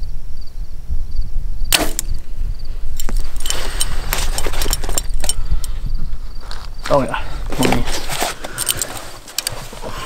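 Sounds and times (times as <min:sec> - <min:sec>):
wind rumble on microphone: 0:00.0 - 0:10.0
binoculars handling clicks and rustling: 0:03.0 - 0:05.8, 0:06.4 - 0:10.0.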